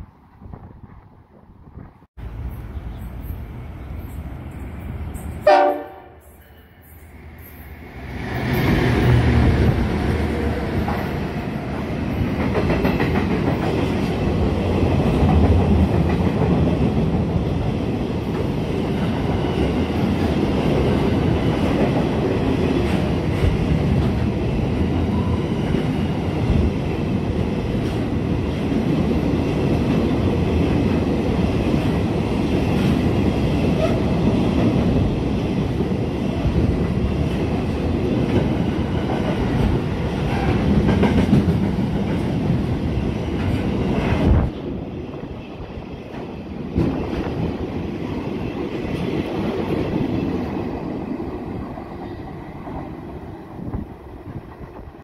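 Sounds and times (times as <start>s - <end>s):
train horn blast: 5.4s - 6.4s
train wheels clacking on rails: 8.4s - 55.0s.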